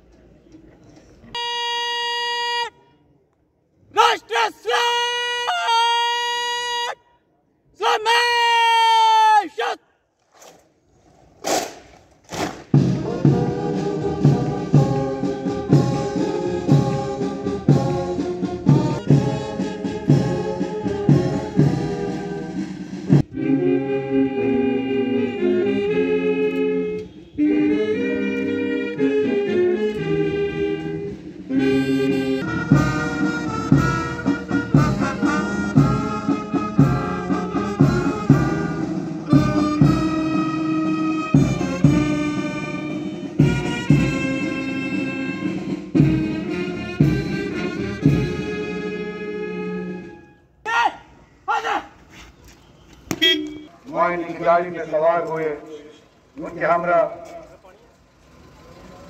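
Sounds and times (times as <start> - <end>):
brass band playing: 11.4 - 50.3
steady drum beat: 12.7 - 23.3, 32.5 - 40.2, 43.4 - 44.6.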